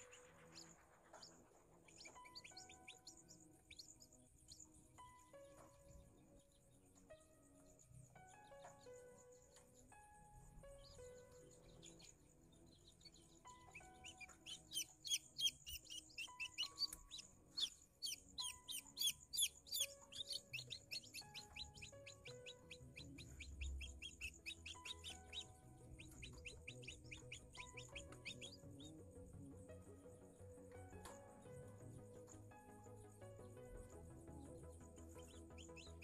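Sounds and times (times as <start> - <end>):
chick peeping: 1.9 - 3.9, 12.8 - 28.9, 35.2 - 36.0.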